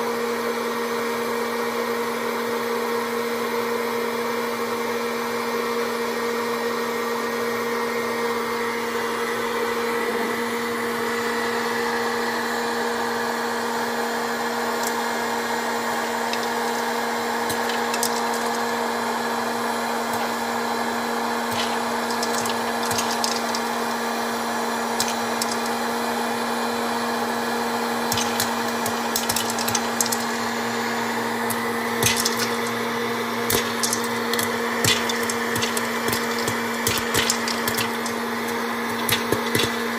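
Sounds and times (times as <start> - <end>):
popcorn popper fan humming: 0.0 - 39.9
popcorn kernels popping: 14.4 - 26.2, 27.6 - 39.9.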